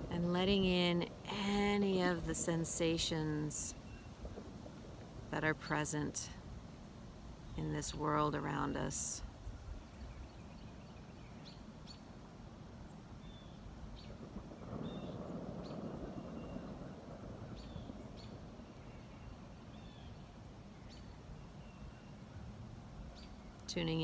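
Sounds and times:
steady low rumble: 0:00.0 - 0:10.7.

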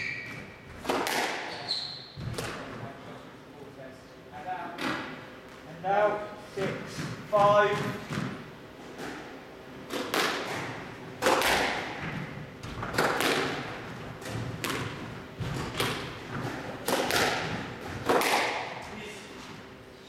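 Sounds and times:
squash ball hits echoing: 0:00.0 - 0:01.6, 0:09.9 - 0:18.9.

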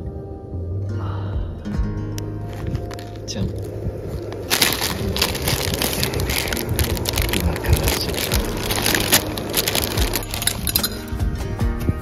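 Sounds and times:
plastic packet crinkling: 0:02.5 - 0:11.1.

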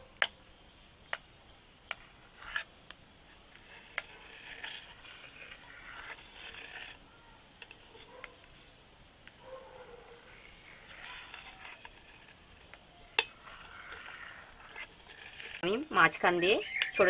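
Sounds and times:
knife scraping a plate: 0:02.3 - 0:02.7, 0:03.5 - 0:07.0, 0:07.6 - 0:08.3, 0:10.4 - 0:15.6.

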